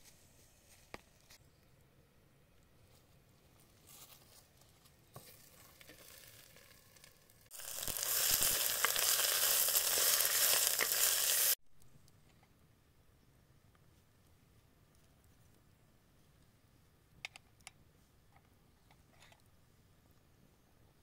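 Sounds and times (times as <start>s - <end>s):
herbs sizzling in oil: 5.2s - 11.6s.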